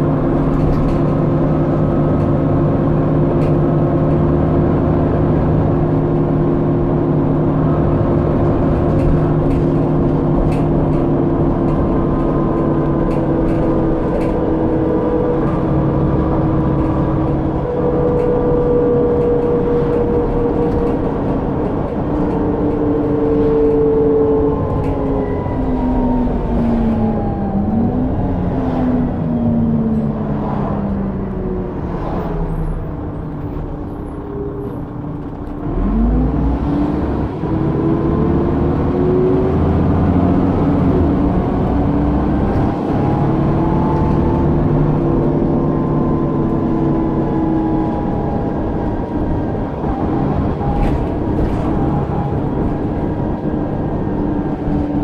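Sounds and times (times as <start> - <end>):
interior clicks and rattles: 0.0 - 25.2, 33.0 - 35.9, 42.2 - 55.0
bus engine and drivetrain hum: 0.0 - 55.0.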